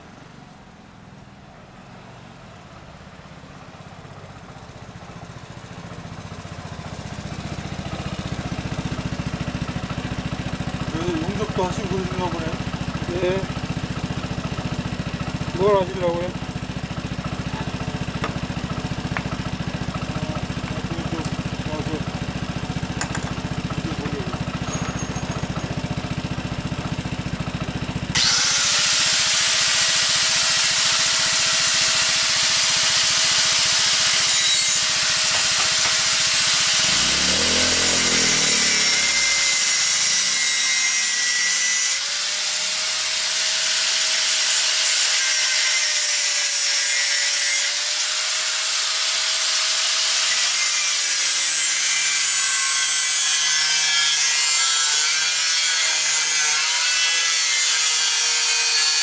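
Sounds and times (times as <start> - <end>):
angle grinder cutting steel: 17.3 - 59.0.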